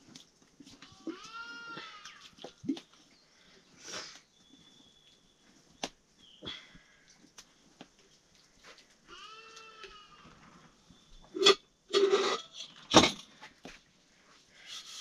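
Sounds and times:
sheep bleating: 0:09.1 - 0:10.3.

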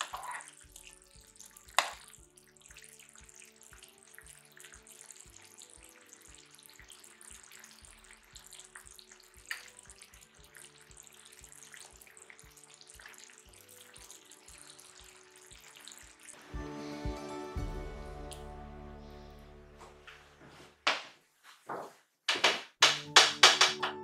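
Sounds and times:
sauce bubbling in a frying pan: 0:00.0 - 0:16.4.

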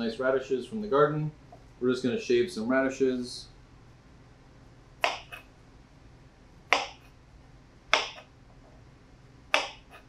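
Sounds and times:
knife chopping on cutting board: 0:05.0 - 0:05.5, 0:06.7 - 0:07.1, 0:07.9 - 0:08.3, 0:09.5 - 0:10.0.

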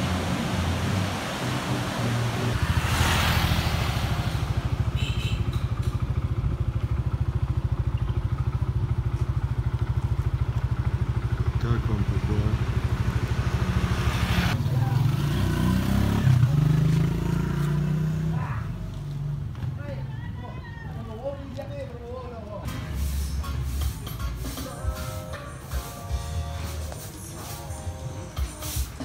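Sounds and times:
motorbike engine running: 0:04.6 - 0:13.8.

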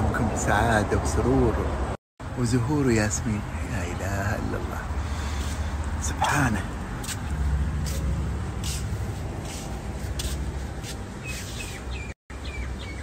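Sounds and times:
small birds chirping: 0:11.1 - 0:13.0.

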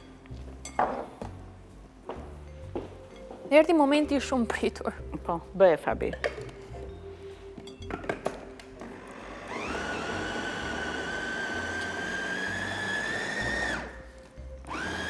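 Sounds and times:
food chopper motor whining: 0:08.8 - 0:14.0, 0:14.6 - 0:15.0.

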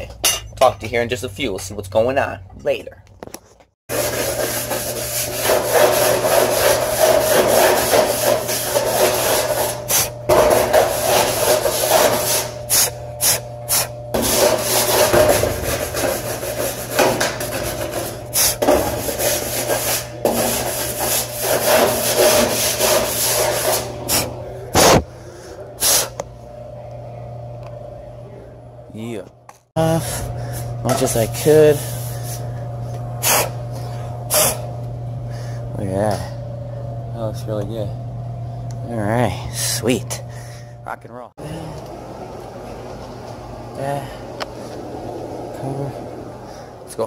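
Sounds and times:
rubbing scrape on sheet metal: 0:03.9 - 0:25.0.

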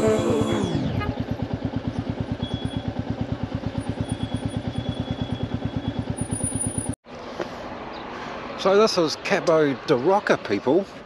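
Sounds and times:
motorcycle engine running slowly: 0:00.0 - 0:07.0.

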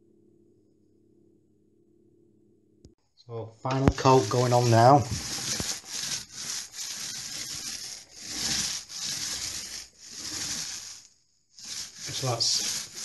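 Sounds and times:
paint roller rubbing on wall: 0:03.7 - 0:13.0.

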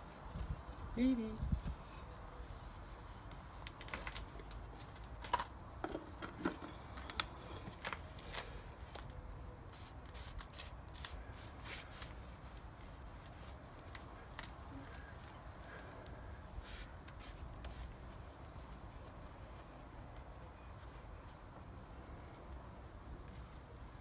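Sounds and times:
wind rumble on microphone: 0:00.0 - 0:02.2
cloth rubbing on car paint: 0:00.0 - 0:05.0, 0:09.6 - 0:24.0.

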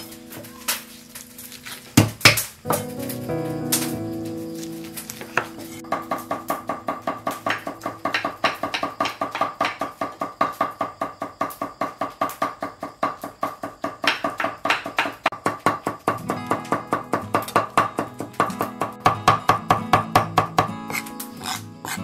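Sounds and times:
knife chopping on wooden board: 0:20.2 - 0:22.0.

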